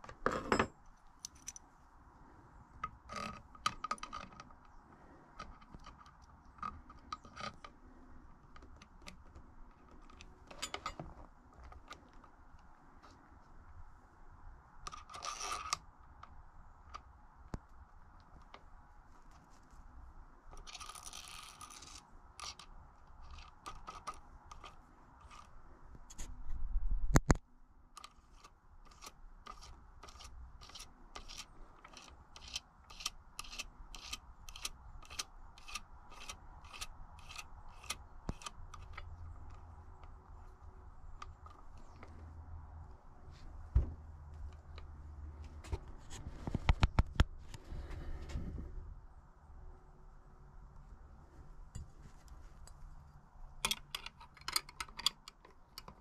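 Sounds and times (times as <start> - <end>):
regular metal tool clicks: 28.0 - 40.2, 53.6 - 56.0.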